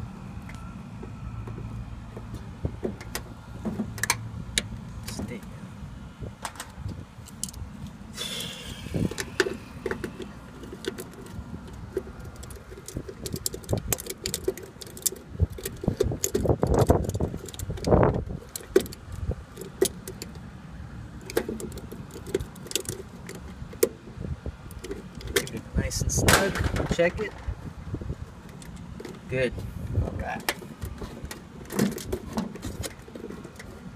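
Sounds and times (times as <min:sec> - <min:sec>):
low steady rumble: 0:00.0 - 0:33.9
wires rattling: 0:09.0 - 0:20.4, 0:21.2 - 0:23.9.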